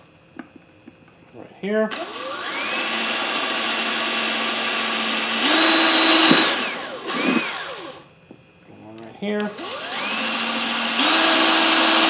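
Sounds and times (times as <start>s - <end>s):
electric drill whining: 1.9s - 8.1s, 9.4s - 12.0s.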